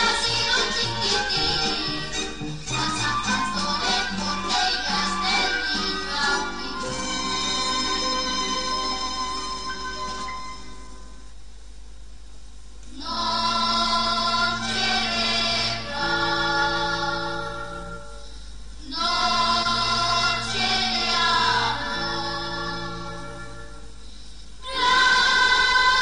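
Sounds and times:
choir singing: 0.0 - 8.7, 13.0 - 18.0, 18.8 - 23.8, 24.6 - 26.0.

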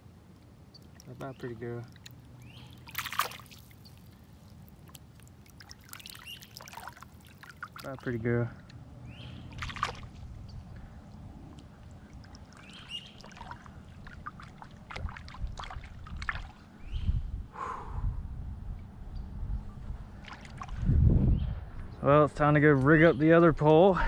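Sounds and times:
water splashing and sloshing: 0.0 - 8.8, 9.4 - 16.8, 20.0 - 21.0
low rumbles of water: 0.0 - 22.6.

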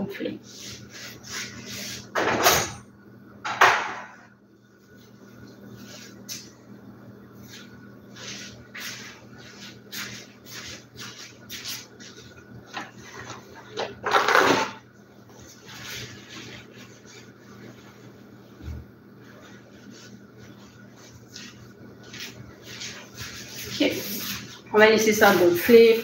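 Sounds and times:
kitchen rustles scrapes and knocks: 0.8 - 2.8, 3.5 - 4.2, 8.2 - 14.8.

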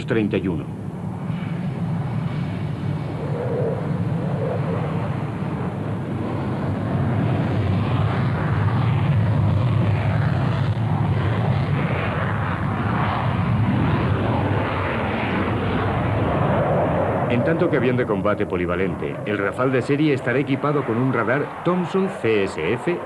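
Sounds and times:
jet engine roar at takeoff: 0.0 - 23.0.

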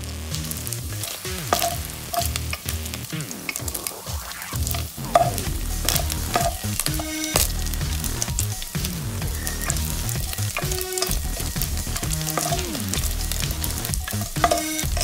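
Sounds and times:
pork sizzling in fat: 0.0 - 15.0.

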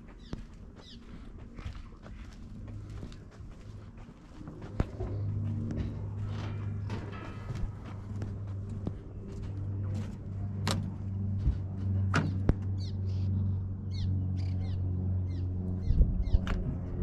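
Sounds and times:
steady low hum: 0.0 - 17.0
bird calling: 0.2 - 1.2.

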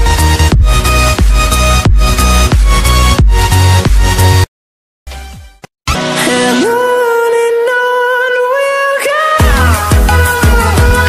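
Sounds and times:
electronic music: 0.0 - 4.5, 5.1 - 7.8, 9.4 - 11.0.

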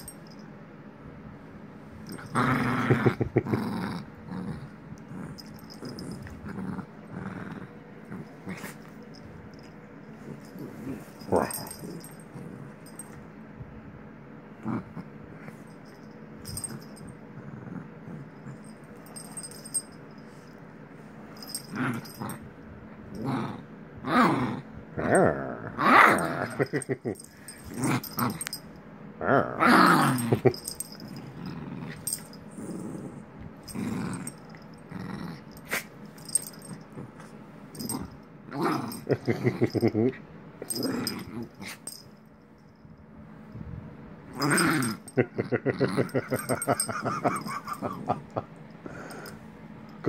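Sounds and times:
puppy growling: 2.1 - 9.0, 10.2 - 13.1, 14.6 - 15.5, 16.4 - 19.8, 21.4 - 22.4, 23.1 - 28.6, 29.2 - 42.0, 44.3 - 49.4.

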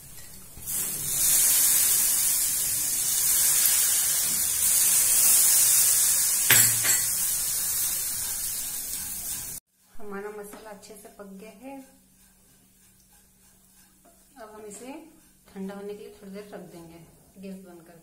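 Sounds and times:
food sizzling in hot pan: 0.0 - 9.6.

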